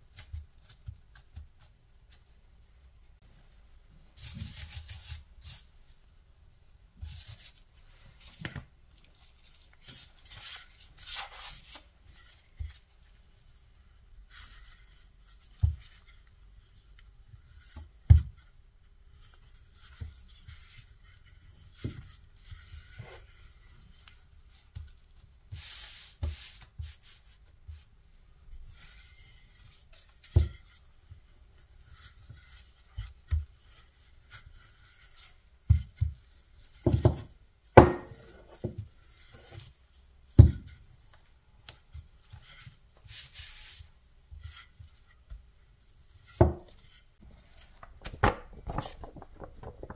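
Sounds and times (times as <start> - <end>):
rolling pin rubbing over dough: 9.2 - 41.2, 41.8 - 47.6
rolling pin knocking: 36.9 - 38.2.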